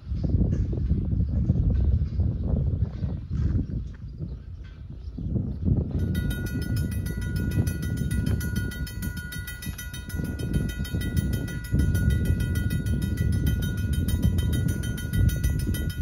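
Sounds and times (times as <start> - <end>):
mechanical crossing bell ringing: 5.9 - 16.0.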